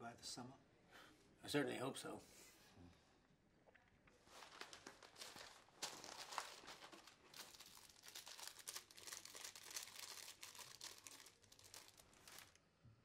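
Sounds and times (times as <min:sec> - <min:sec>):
sweet wrapper crinkling: 0:04.2 - 0:12.6.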